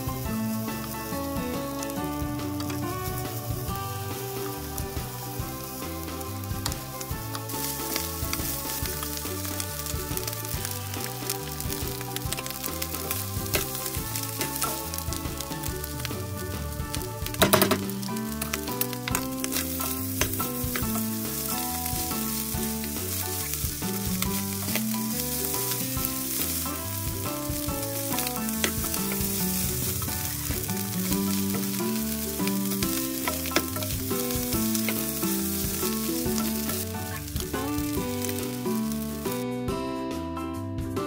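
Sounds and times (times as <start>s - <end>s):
rice sizzling in a wok: 0.0s - 39.6s
background music with bass: 0.0s - 41.0s
spatula scraping and tapping pan: 0.6s - 16.1s, 16.9s - 39.4s.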